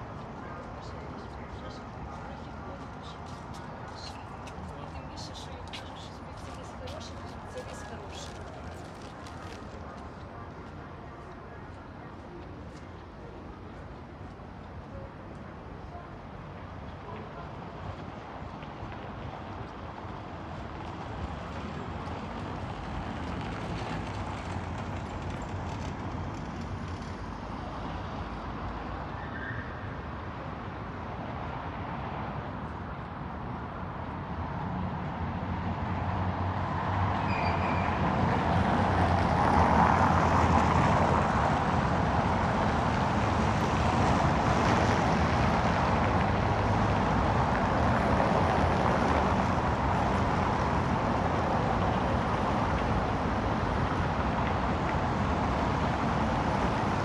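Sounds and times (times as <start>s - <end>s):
passing cars: 16.7s - 57.0s.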